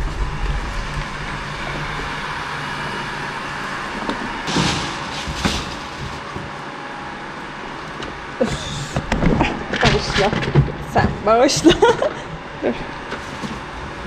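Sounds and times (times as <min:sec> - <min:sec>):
steady background hum: 0:00.0 - 0:14.0
plastic bags rustling: 0:04.2 - 0:07.0.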